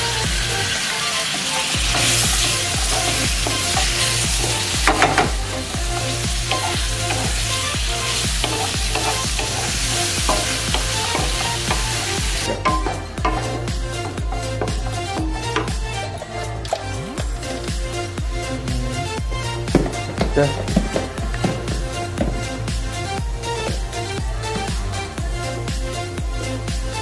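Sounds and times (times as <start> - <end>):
vegetables sizzling in a wok: 0.0 - 16.2
background music with low beat: 0.0 - 27.0
wooden spatula scraping wok: 1.6 - 16.7.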